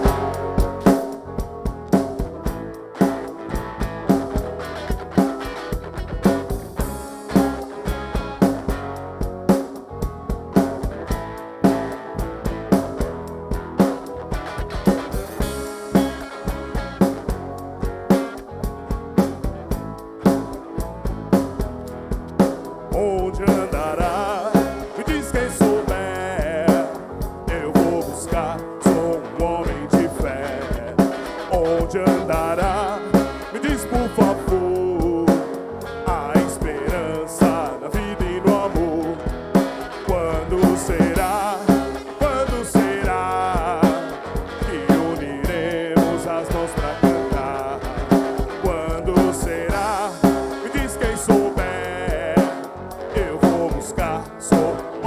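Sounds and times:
person singing: 0.0s - 1.3s, 22.8s - 55.0s
live rock band playing: 0.0s - 55.0s.

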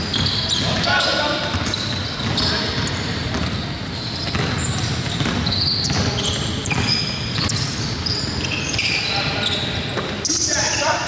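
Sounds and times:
basketball bouncing: 0.0s - 8.8s
sneaker squeaks: 0.0s - 11.0s.

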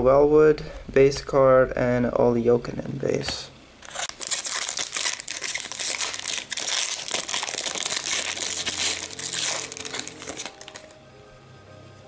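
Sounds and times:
foil wrapper crinkling: 3.8s - 11.0s.

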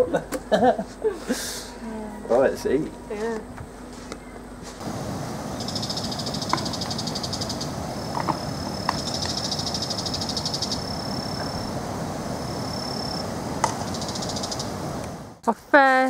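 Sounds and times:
steady high whine: 0.0s - 15.6s
rushing background noise: 2.9s - 15.5s
insects trilling: 4.8s - 15.4s.

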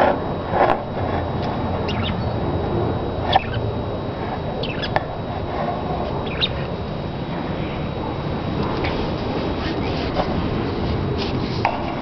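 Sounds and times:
budgerigars chirping: 1.9s - 2.4s, 3.3s - 3.6s, 4.6s - 5.0s, 6.2s - 6.6s.

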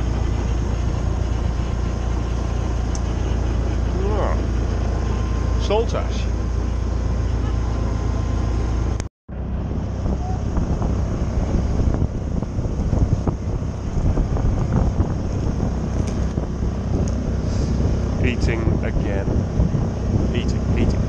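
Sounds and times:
water rushing along boat hull: 0.0s - 21.0s
wind buffeting microphone: 9.3s - 21.0s.

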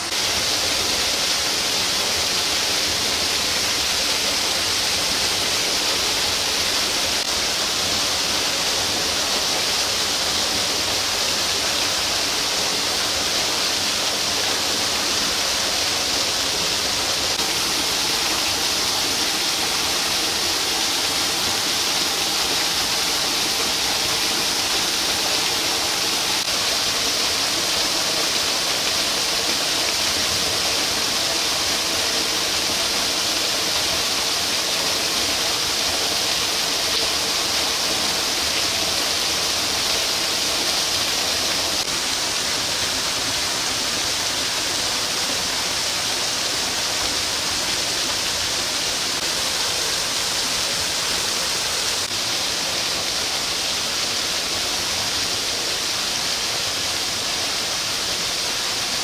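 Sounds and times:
steady rushing noise: 14.9s - 31.9s.

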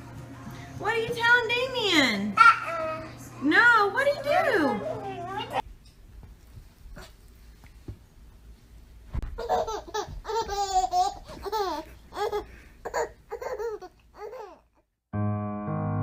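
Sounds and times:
baby laughing: 2.4s - 3.1s, 9.3s - 14.7s.

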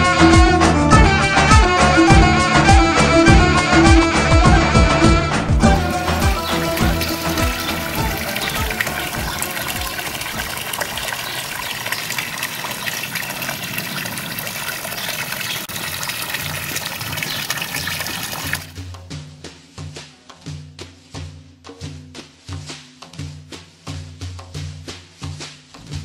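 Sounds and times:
music playing: 0.0s - 10.7s
water gushing into fountain: 5.6s - 18.8s.

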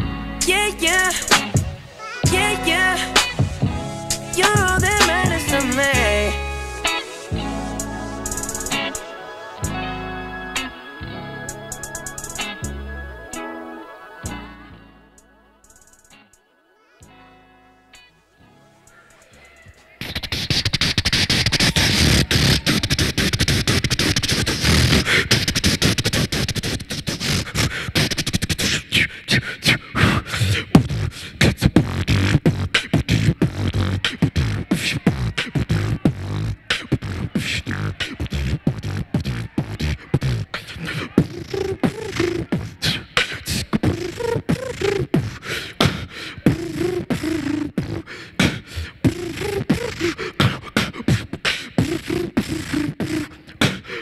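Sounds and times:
static-like hissing: 0.0s - 9.8s, 11.5s - 13.5s
beatboxing: 0.0s - 9.9s, 10.5s - 14.5s, 15.6s - 16.4s, 18.9s - 54.0s.

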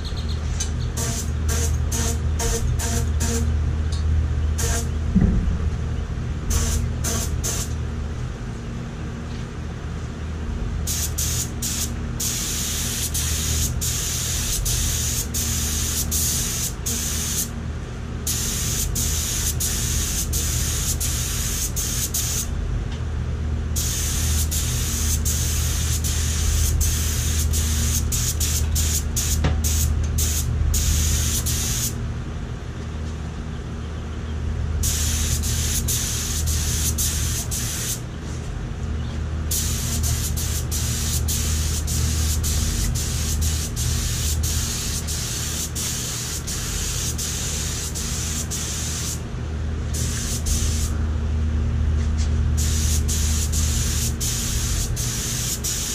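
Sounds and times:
steady low hum: 0.0s - 55.9s
air spray gun hissing: 1.0s - 3.4s, 6.5s - 7.7s, 10.9s - 17.5s, 18.3s - 22.5s, 23.8s - 32.0s, 34.8s - 38.0s, 39.5s - 49.2s, 49.9s - 51.0s, 52.6s - 55.9s.

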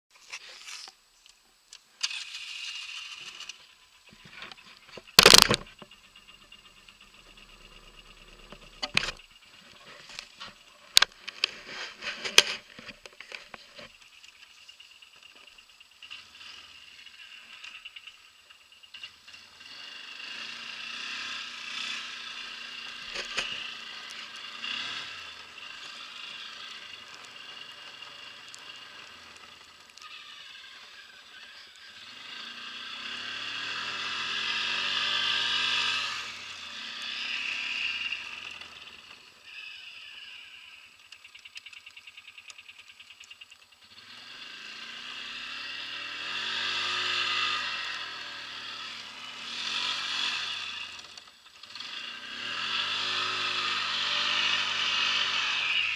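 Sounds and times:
quad bike engine revving: 4.4s - 9.6s, 16.0s - 41.1s, 43.8s - 55.9s.

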